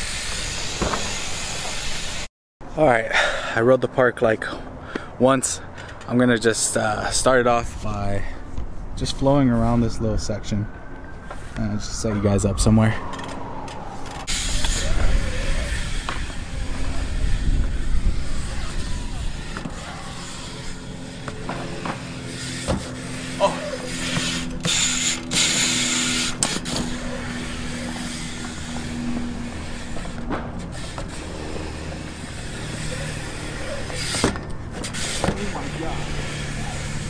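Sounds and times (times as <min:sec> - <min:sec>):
bike rolling over concrete: 0:13.1 - 0:37.0.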